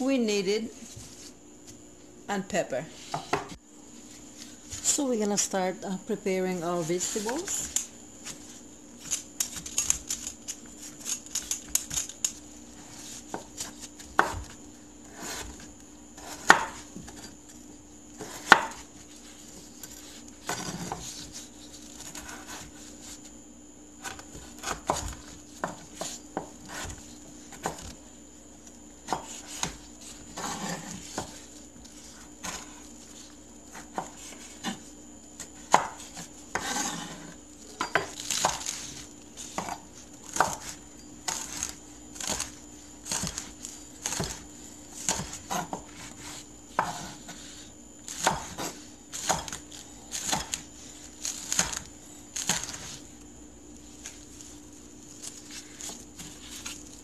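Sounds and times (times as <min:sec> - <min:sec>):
knife chopping on wooden board: 0:03.1 - 0:03.6, 0:13.3 - 0:14.5, 0:16.2 - 0:16.9, 0:18.2 - 0:18.9, 0:24.0 - 0:27.9, 0:29.0 - 0:31.5, 0:35.4 - 0:44.4, 0:45.0 - 0:47.5, 0:48.1 - 0:50.6, 0:51.2 - 0:53.0
peeler scraping potato skin: 0:09.0 - 0:13.8.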